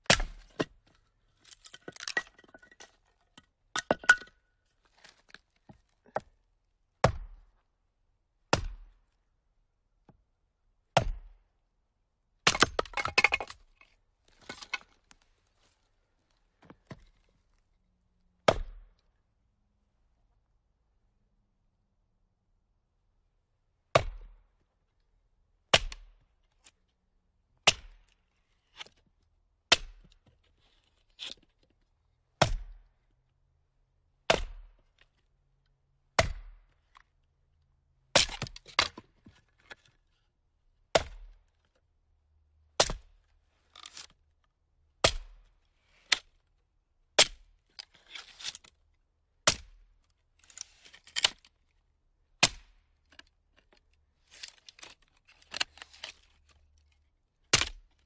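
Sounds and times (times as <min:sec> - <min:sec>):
axe chopping firewood: 0:00.0 - 0:02.6, 0:03.8 - 0:04.4, 0:07.0 - 0:07.5, 0:08.5 - 0:09.0, 0:11.0 - 0:11.4, 0:12.4 - 0:13.6, 0:18.4 - 0:18.9, 0:23.9 - 0:24.4, 0:25.7 - 0:26.1, 0:27.6 - 0:28.0, 0:29.7 - 0:30.2, 0:32.4 - 0:32.8, 0:34.3 - 0:34.8, 0:36.2 - 0:36.6, 0:38.1 - 0:39.1, 0:40.9 - 0:41.4, 0:42.8 - 0:43.1, 0:45.0 - 0:45.4, 0:47.2 - 0:47.4, 0:49.4 - 0:49.8, 0:52.4 - 0:52.8, 0:57.5 - 0:57.9.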